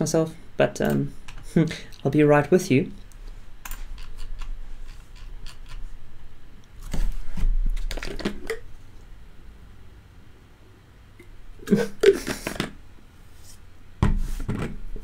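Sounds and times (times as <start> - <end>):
rustling and knocking of bottle: 14.0 - 14.9.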